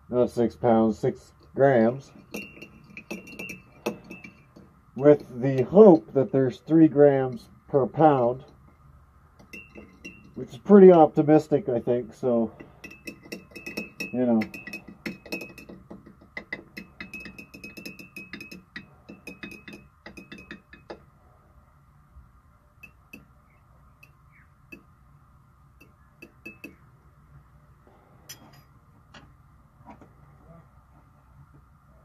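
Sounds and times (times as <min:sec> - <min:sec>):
glass rod clinking in beaker: 0:02.2 - 0:04.5, 0:09.4 - 0:10.4, 0:12.6 - 0:15.8, 0:16.8 - 0:20.9, 0:22.8 - 0:23.2, 0:26.2 - 0:26.8, 0:28.3 - 0:28.7.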